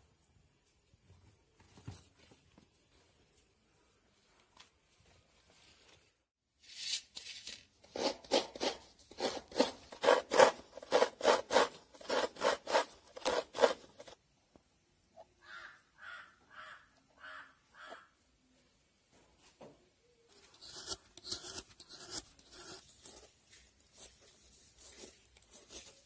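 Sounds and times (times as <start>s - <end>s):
coconut scraping on metal grater: 7.9s - 14.2s, 20.4s - 26.0s.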